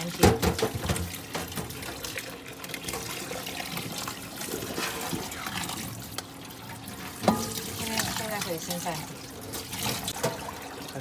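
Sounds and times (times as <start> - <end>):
water splashing and trickling: 0.0 - 11.0
tap running into metal sink: 7.2 - 8.5.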